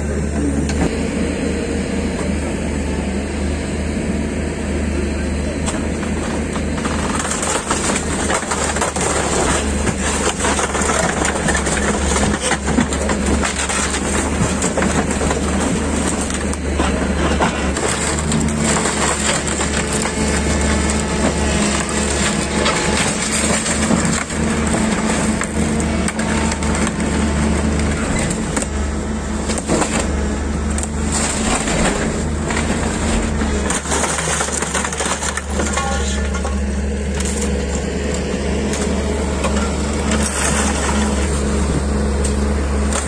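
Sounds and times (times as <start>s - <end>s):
excavator engine running: 0.0s - 43.0s
wood and metal crunching: 5.6s - 43.0s
debris dropping into skip: 5.7s - 43.0s.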